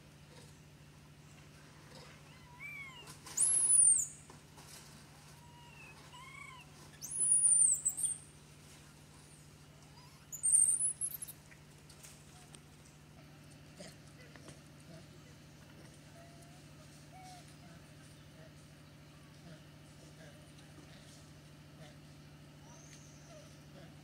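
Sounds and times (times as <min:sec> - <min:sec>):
young monkey crying softly: 0:01.8 - 0:12.6, 0:13.2 - 0:24.0
young monkey squealing: 0:02.3 - 0:04.1, 0:05.4 - 0:08.2, 0:10.0 - 0:11.3.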